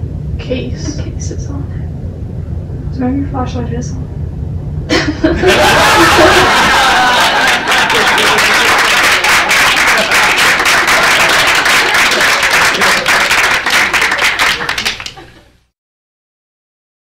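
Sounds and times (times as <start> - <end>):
people laughing: 4.9 - 15.5
people clapping fast: 5.6 - 15.4.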